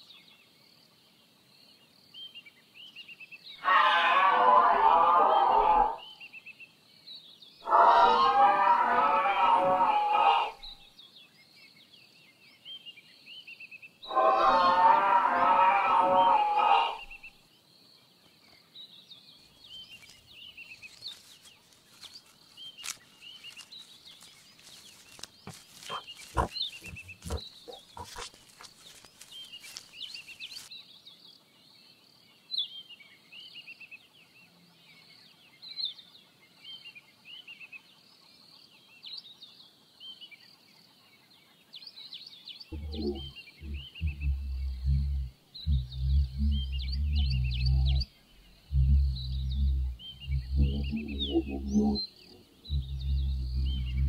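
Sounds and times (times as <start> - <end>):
small birds chirping: 6.0 - 32.0, 41.4 - 54.0
low pulsing grunt: 25.5 - 28.3, 42.7 - 54.0.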